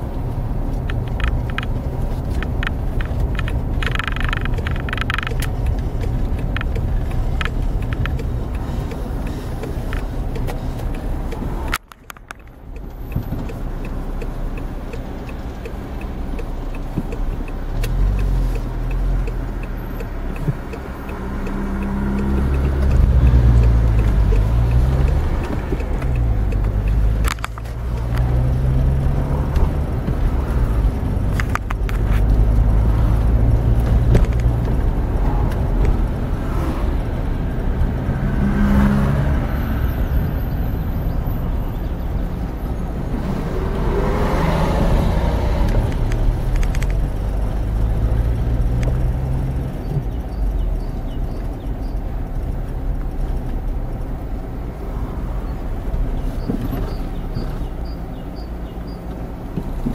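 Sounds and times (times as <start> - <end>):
car engine accelerating: 0.0 - 59.9
road noise inside car: 0.0 - 59.9.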